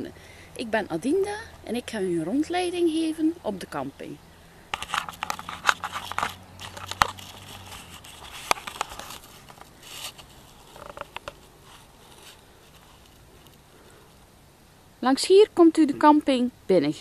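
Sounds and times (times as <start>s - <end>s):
faint low hum: 0.0s - 17.0s
camera handling clicks and rustles: 4.7s - 13.6s.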